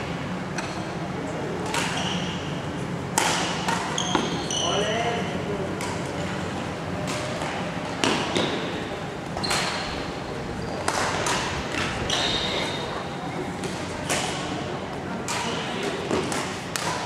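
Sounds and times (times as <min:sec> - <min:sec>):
shoes squeaking on court floor: 0:03.9 - 0:05.2, 0:09.4 - 0:13.0.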